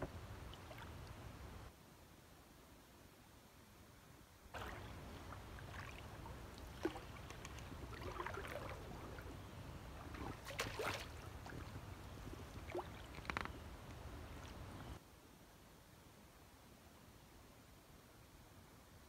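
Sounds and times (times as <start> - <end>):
paddle splashes and drips: 0.0 - 1.2, 4.5 - 13.5.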